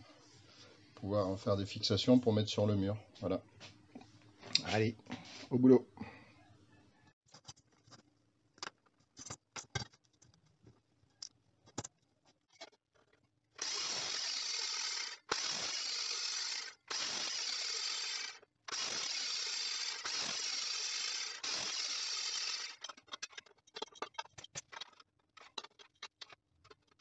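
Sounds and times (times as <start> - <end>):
chop saw cutting steel: 13.6 - 23.2.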